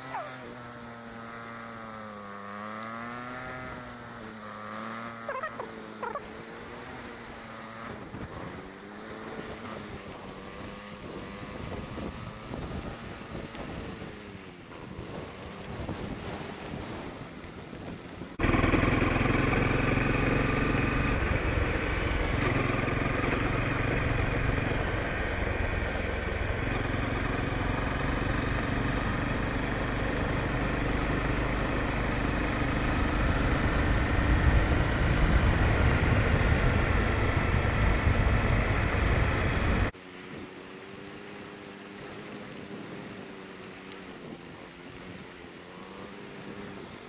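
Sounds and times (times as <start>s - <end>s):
gravel road noise: 0.0s - 47.0s
motorcycle engine running steadily: 0.0s - 47.0s
wind rumble: 32.7s - 39.9s.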